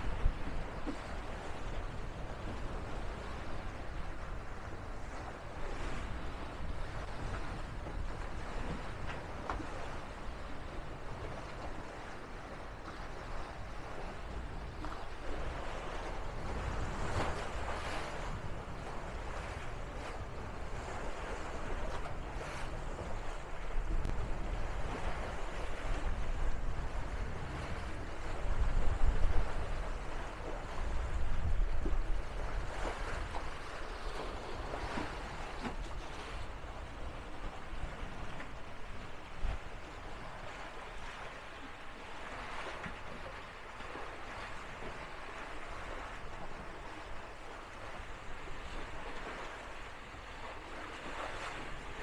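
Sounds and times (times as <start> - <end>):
water rushing along hull: 0.0 - 52.0
wind rumbling on microphone: 0.0 - 52.0.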